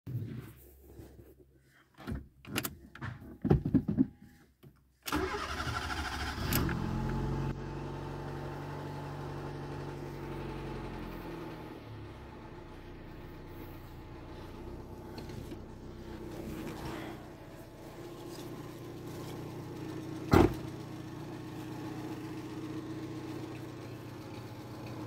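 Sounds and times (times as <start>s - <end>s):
car starter cranking: 5.1s - 7.4s
car engine idling: 5.1s - 25.0s.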